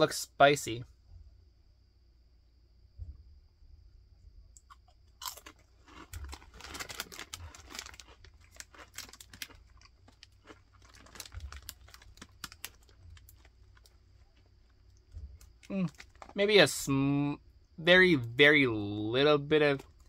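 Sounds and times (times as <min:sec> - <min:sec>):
person crunching a snack: 0:04.6 - 0:16.4.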